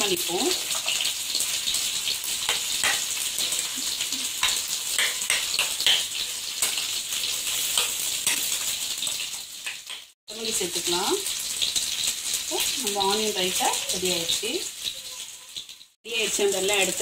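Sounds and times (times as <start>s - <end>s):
fish sizzling in oil: 0.0s - 17.0s.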